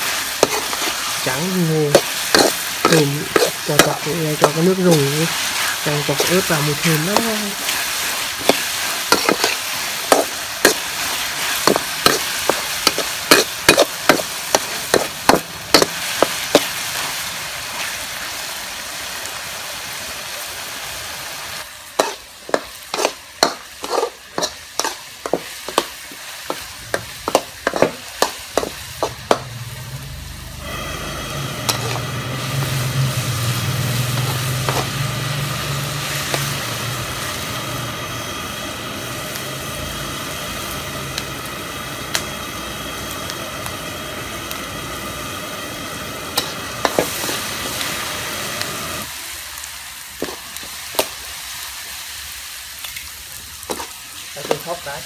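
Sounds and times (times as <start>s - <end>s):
metal spatula scraping a wok: 0.0s - 16.7s, 22.0s - 29.4s, 30.6s - 36.6s
food sizzling: 0.0s - 55.0s.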